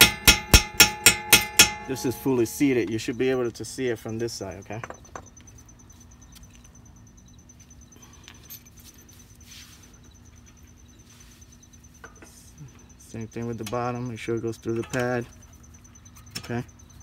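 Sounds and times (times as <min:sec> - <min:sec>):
high fast-pulsing chirp: 0:01.6 - 0:08.2, 0:08.9 - 0:17.0
metal clicks and light scrapes: 0:14.6 - 0:15.5.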